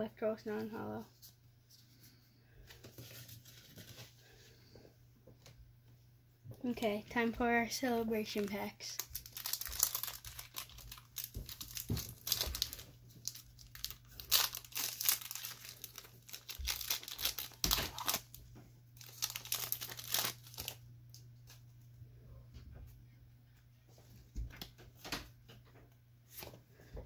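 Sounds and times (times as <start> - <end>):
foil wrapper tearing and crinkling: 8.4 - 18.4, 19.0 - 20.8.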